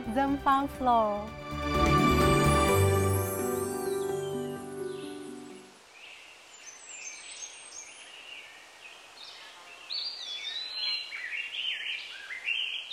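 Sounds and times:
soft background music: 0.0s - 5.8s
small birds chirping: 3.7s - 12.9s.

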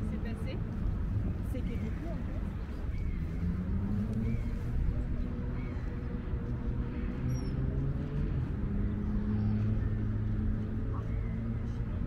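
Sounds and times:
low engine drone: 2.4s - 12.0s.

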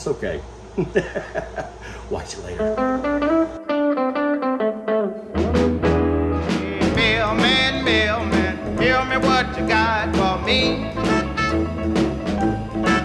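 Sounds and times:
country music with singing: 5.4s - 13.0s.

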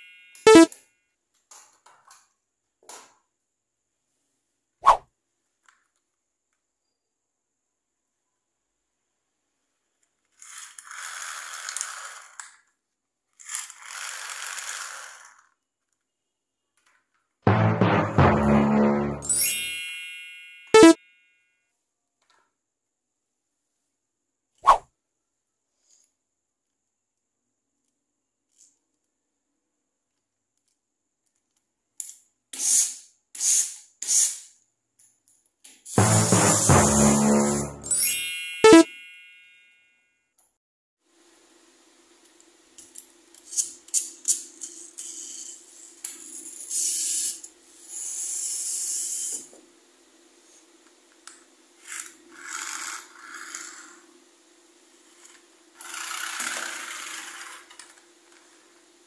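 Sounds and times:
toy train scraping on paper: 10.2s - 12.7s, 13.3s - 15.9s, 32.6s - 34.6s, 43.4s - 49.5s, 51.8s - 54.0s, 55.1s - 58.7s
toy train clicks: 10.3s - 12.7s, 13.4s - 15.6s, 55.8s - 58.0s
loud music: 17.5s - 19.4s, 36.0s - 38.0s.

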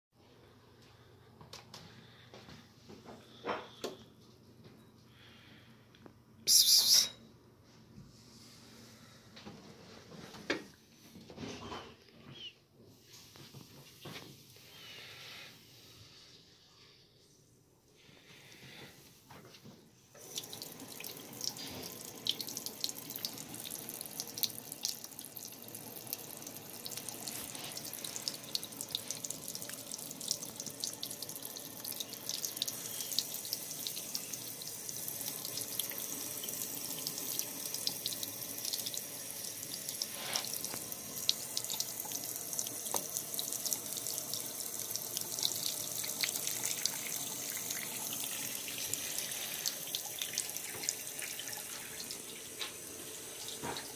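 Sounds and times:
water dripping: 20.2s - 53.9s
tap running into sink: 40.4s - 43.2s, 53.5s - 53.9s.

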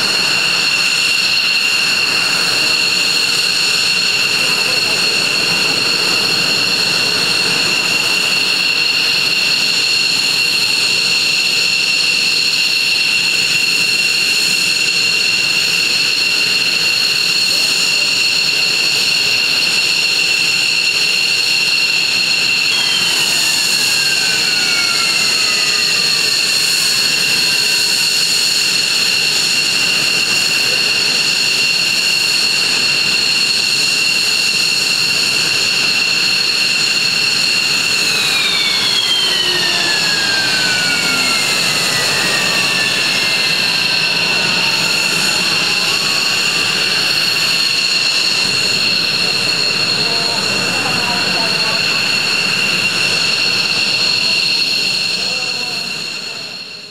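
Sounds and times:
jet engines whining: 0.0s - 56.9s
whine sliding down in pitch: 22.2s - 27.7s, 37.3s - 56.9s.

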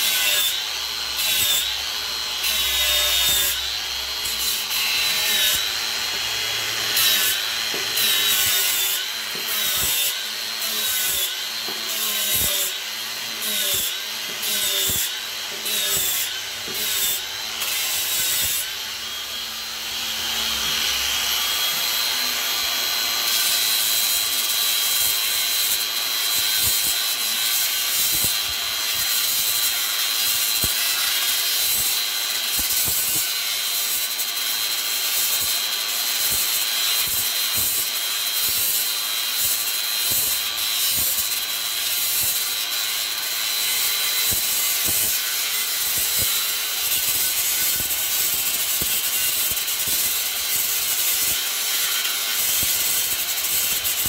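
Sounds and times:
angle grinder sanding wood: 0.0s - 54.0s.

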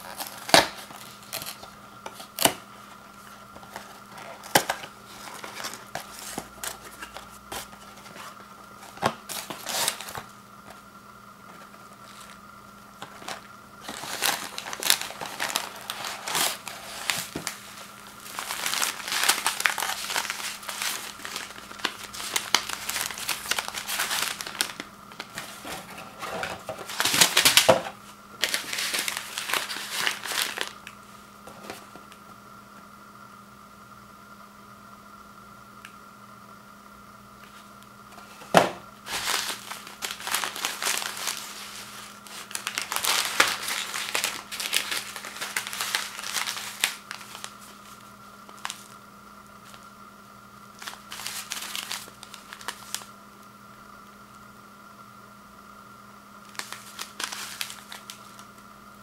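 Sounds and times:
paper packets rustling and crinkling: 0.0s - 10.8s, 11.5s - 12.4s, 13.0s - 32.2s, 38.2s - 49.0s, 50.8s - 53.1s, 56.5s - 58.6s
cardboard lid snapping and tearing: 0.1s - 2.6s.

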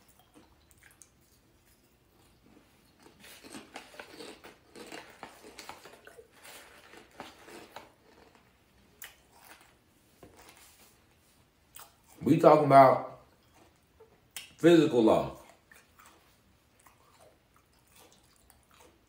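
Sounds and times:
chewing and crunching snack: 0.0s - 12.3s, 13.0s - 14.6s, 15.3s - 19.0s
snack bag crinkling: 3.0s - 10.9s.

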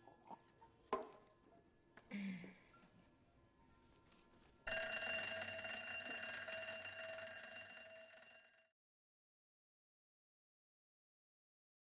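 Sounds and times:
bright bell-like chime: 4.7s - 8.6s.

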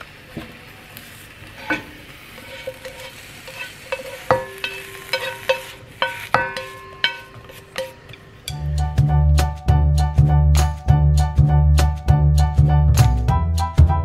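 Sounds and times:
eggplant sizzling in a frying pan: 0.0s - 8.8s
metal ringing: 1.6s - 8.8s
pan knocking against metal bowl: 1.6s - 8.8s.

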